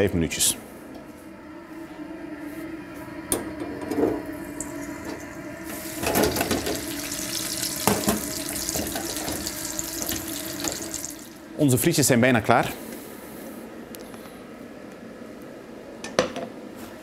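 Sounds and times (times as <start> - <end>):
low steady hum: 0.0 - 16.7
deep-fryer oil sizzling: 4.3 - 11.5.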